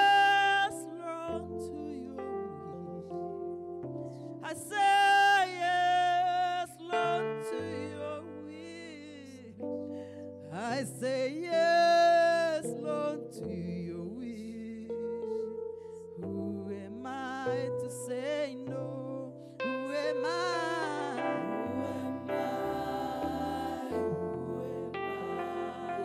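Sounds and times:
sustained instrumental chords: 19.7 - 26.0.

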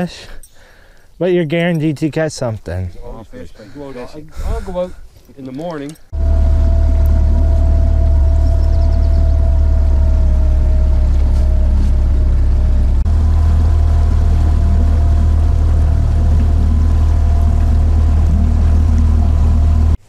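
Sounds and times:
outboard motor drone: 6.1 - 20.0
water rushing along hull: 6.1 - 20.0.

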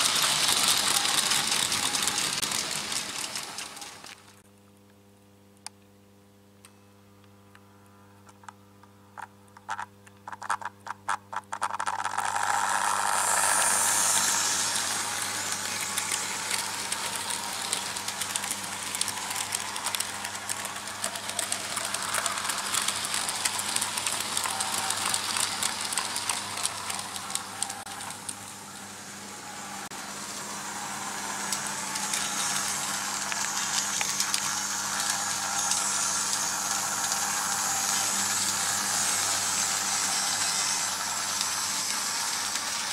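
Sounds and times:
model train wheels rattling: 0.0 - 4.4, 11.6 - 28.6, 31.5 - 42.9
low hum: 12.0 - 42.9.

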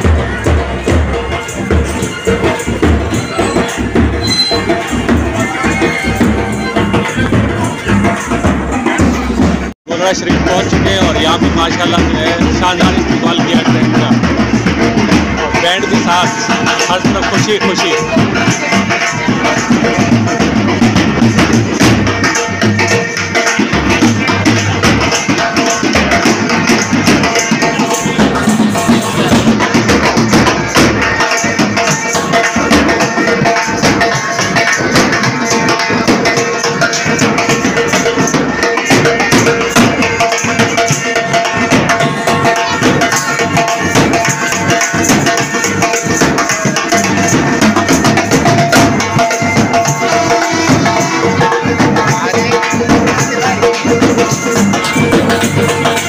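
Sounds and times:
drum beat: 0.0 - 56.0
bagpipes holding notes: 49.4 - 52.1.

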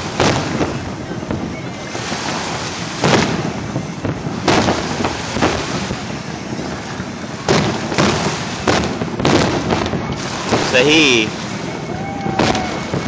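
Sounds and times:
fireworks booming: 0.0 - 13.0.

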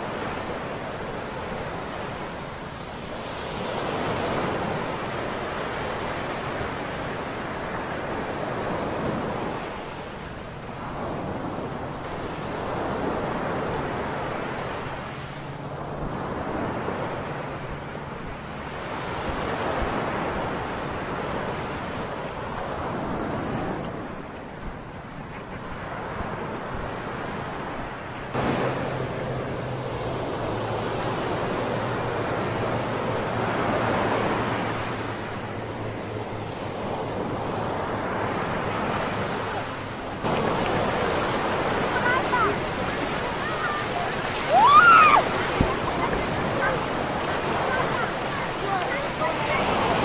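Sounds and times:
waves breaking on sand: 0.0 - 50.0
wind on microphone: 15.8 - 50.0.

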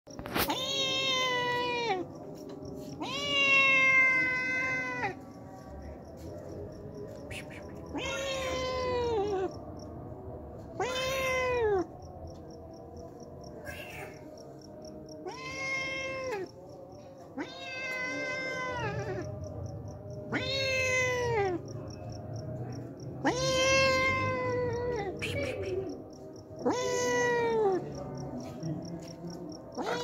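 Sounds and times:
cat meowing: 0.2 - 5.3, 7.0 - 9.8, 10.7 - 12.1, 15.2 - 19.3, 20.2 - 21.8, 23.2 - 28.0, 29.7 - 30.0.

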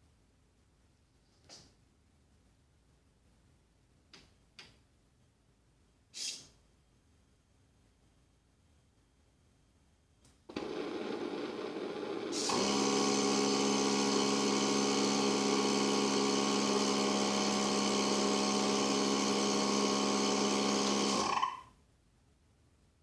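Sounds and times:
cooling air hiss: 6.1 - 6.6.

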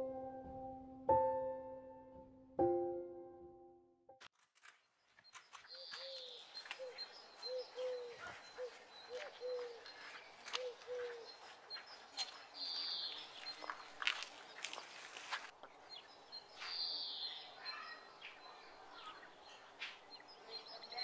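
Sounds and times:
small birds chirping: 4.8 - 21.0
dove cooing: 6.0 - 9.9, 10.5 - 11.4.

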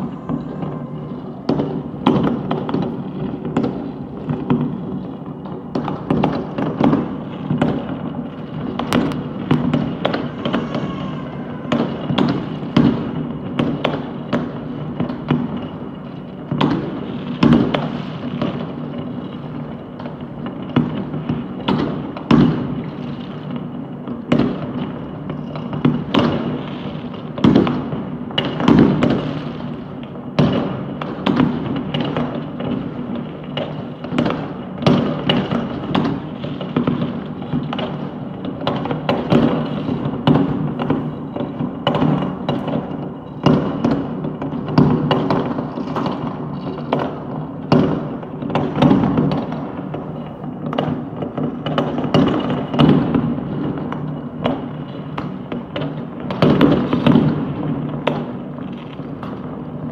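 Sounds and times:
loud firework bang: 0.0 - 15.8, 16.5 - 19.0, 20.7 - 23.6, 24.3 - 29.8, 30.4 - 50.0
fireworks bangs and pops: 0.0 - 59.9.

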